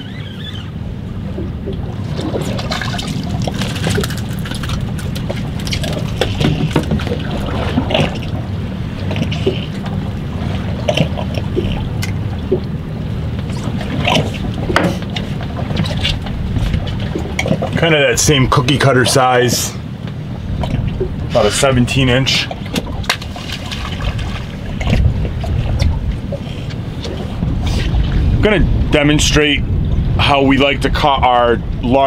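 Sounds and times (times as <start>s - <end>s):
steady low rumble: 0.0s - 32.0s
water lapping against boat hull: 0.0s - 32.0s
small knocks and splashes: 1.4s - 8.4s, 13.5s - 17.8s, 22.4s - 26.0s.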